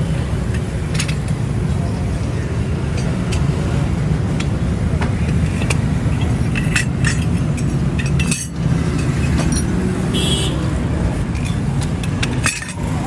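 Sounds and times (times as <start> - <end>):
metal parts clinking on concrete: 0.9 - 1.4, 5.2 - 9.9, 11.2 - 13.0.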